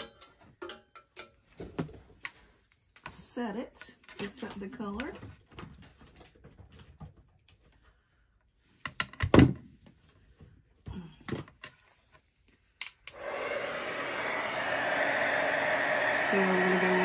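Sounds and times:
heat tool blowing: 13.1s - 17.0s.

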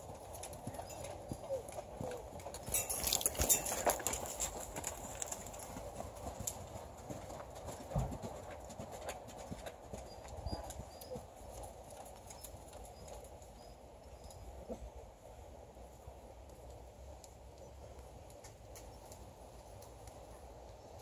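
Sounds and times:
horse hoofbeats on sand: 0.0s - 13.4s.

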